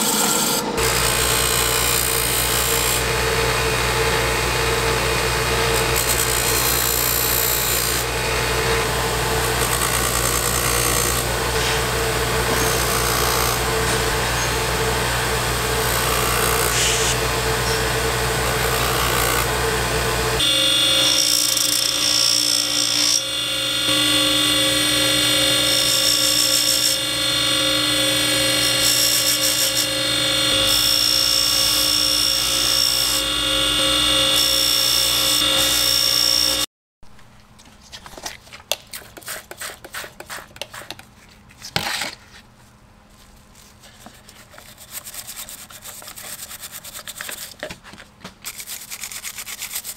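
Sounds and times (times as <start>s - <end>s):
bench grinder motor hum: 0.0s - 36.7s
buffing wheel polishing metal: 15.8s - 17.8s
grinder wheel rubbing hiss: 16.6s - 17.2s.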